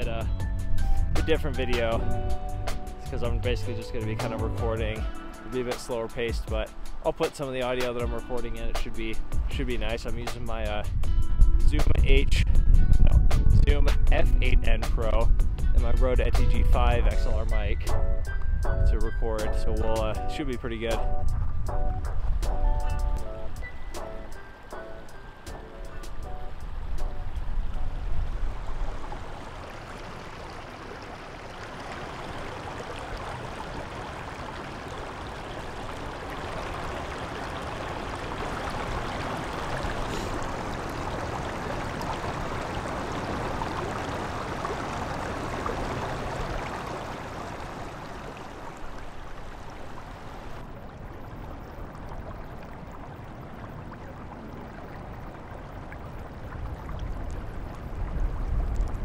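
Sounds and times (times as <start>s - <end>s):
creek water rushing over rocks: 23.4s - 59.0s.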